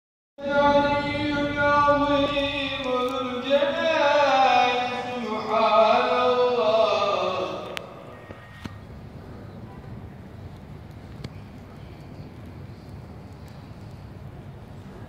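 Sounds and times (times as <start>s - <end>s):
man chanting religious recitation: 0.4s - 8.3s.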